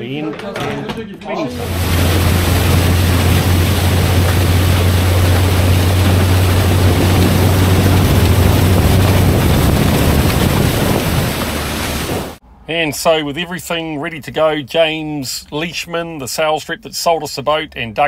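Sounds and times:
outboard motor drone: 1.5 - 12.4
wind and spray on microphone: 1.6 - 12.4.

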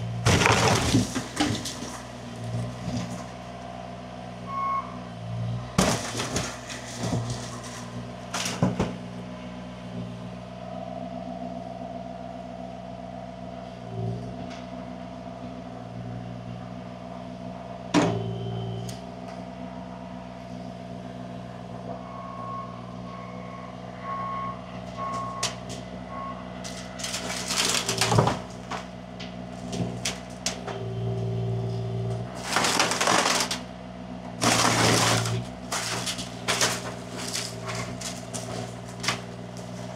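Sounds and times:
heavy equipment engine running: 0.0 - 39.9
debris clattering bangs: 0.2 - 3.3, 5.8 - 9.0, 26.6 - 28.9, 29.6 - 30.8, 32.3 - 33.6, 34.4 - 39.9
reversing alarm beeps: 4.5 - 5.0, 18.1 - 18.9, 21.8 - 26.6.

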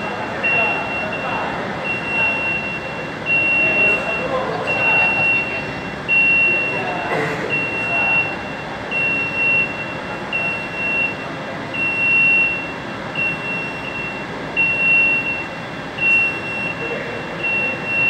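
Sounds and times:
forklift warning beeper: 0.0 - 18.0
steady background hum: 0.0 - 18.0.

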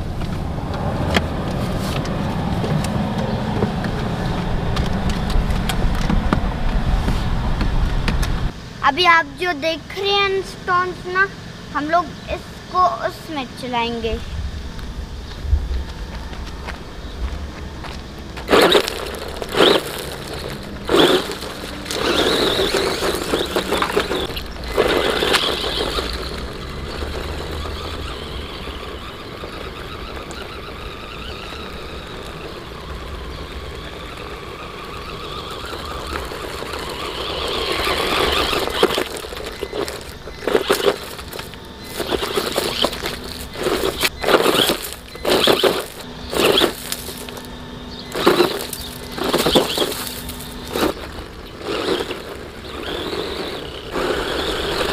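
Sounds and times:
rc car motor whining: 9.8 - 54.9
tyres crunching on stones: 14.8 - 54.9.

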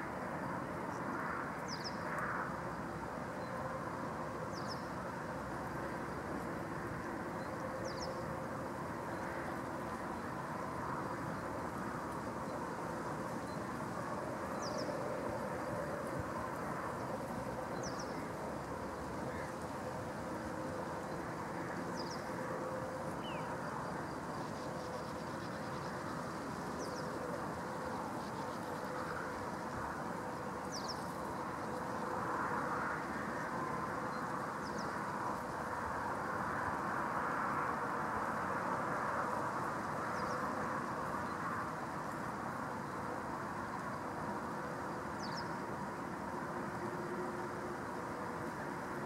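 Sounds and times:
low outdoor background rumble: 4.5 - 36.0.

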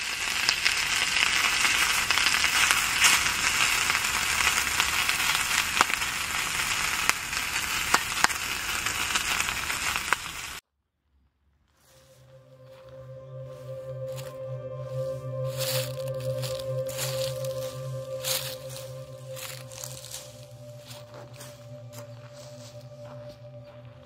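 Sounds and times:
grease popping: 0.0 - 10.6
sausages sizzling in frying pan: 0.0 - 10.6, 16.4 - 21.0.

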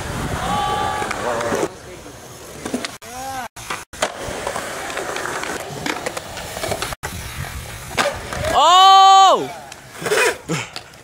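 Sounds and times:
skateboard wheels rolling on concrete: 0.0 - 11.0
person calling: 3.0 - 3.5
skateboard clicks and taps: 9.6 - 11.0.

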